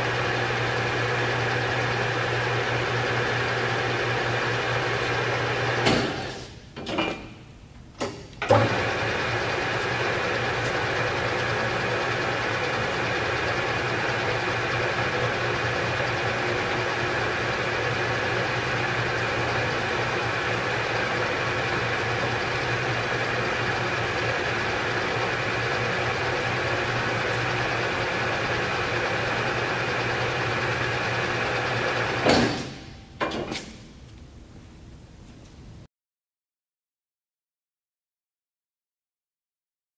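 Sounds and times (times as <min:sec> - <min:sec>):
lathe running with hum and whine: 0:00.0 - 0:06.6, 0:08.4 - 0:33.1.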